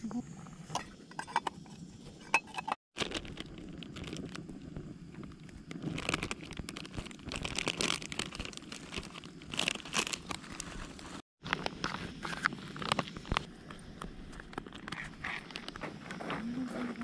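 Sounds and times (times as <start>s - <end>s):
snack wrapper crinkling and tearing: 3.0s - 4.4s, 5.7s - 11.7s.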